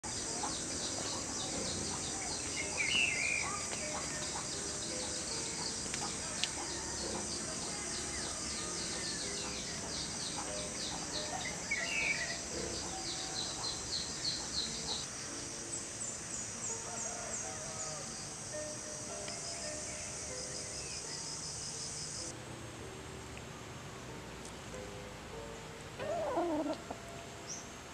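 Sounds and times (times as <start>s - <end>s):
bird calling: 0.0s - 15.1s, 26.0s - 27.7s
insects chirring: 0.0s - 22.9s.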